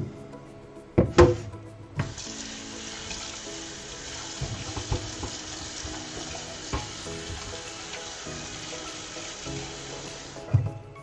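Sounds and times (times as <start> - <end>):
tap water running into pot: 2.0 - 10.7
pot knocking in sink: 4.3 - 7.9.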